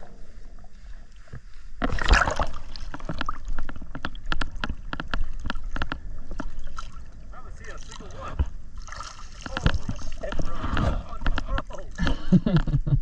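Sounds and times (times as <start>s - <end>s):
water rushing and splashing: 1.8s - 12.0s
water clicks and ticks: 1.8s - 12.9s.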